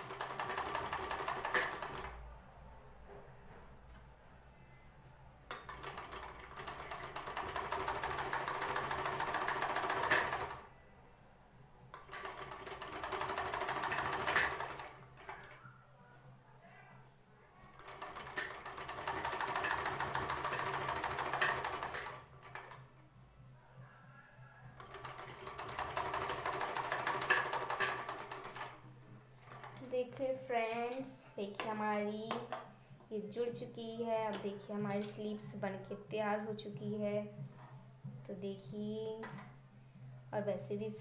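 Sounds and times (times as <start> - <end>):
sewing machine stitching: 0.0 - 2.2, 5.5 - 10.7, 12.0 - 15.6, 17.7 - 22.8, 24.8 - 28.8.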